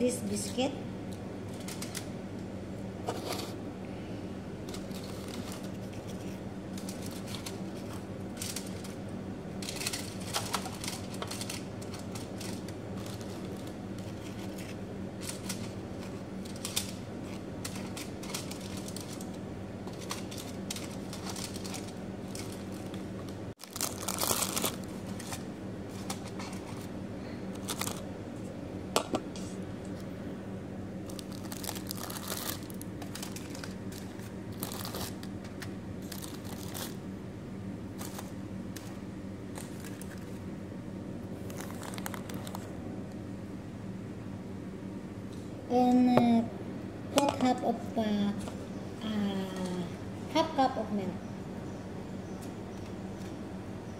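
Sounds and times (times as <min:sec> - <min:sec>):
steady low hum: 0:00.0 - 0:53.9
aluminium foil crinkling: 0:01.5 - 0:02.1, 0:04.6 - 0:28.1, 0:31.0 - 0:37.0, 0:37.9 - 0:40.5, 0:41.4 - 0:42.7.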